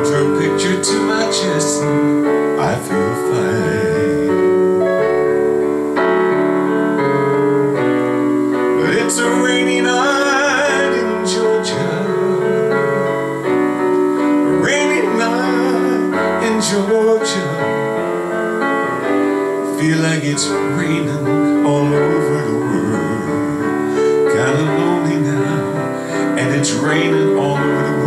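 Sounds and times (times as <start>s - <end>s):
man singing: 0.0s - 5.0s, 8.6s - 13.5s, 14.2s - 28.0s
digital piano slow chords: 0.0s - 28.0s.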